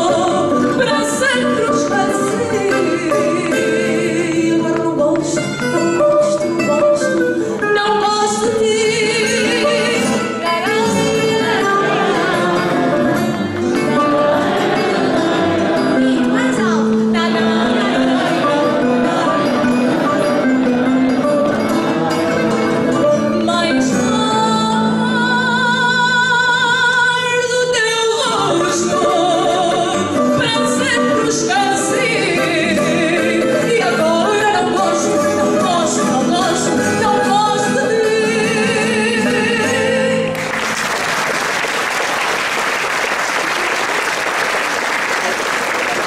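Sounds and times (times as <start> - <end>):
woman singing with vibrato: 0.0 - 22.2, 22.8 - 40.4
audience applause: 40.3 - 46.0.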